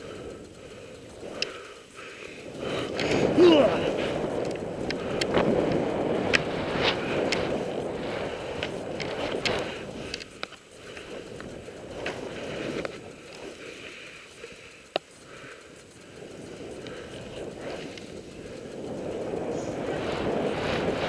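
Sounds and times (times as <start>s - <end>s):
sharp clicks: 0.0s - 21.0s
skis swishing through powder snow: 5.3s - 10.1s.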